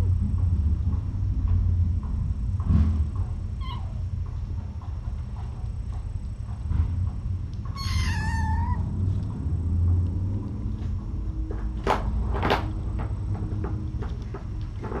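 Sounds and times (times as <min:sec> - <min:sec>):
steady low hum: 0:00.0 - 0:15.0
kitten meowing: 0:03.6 - 0:04.0, 0:07.7 - 0:08.9.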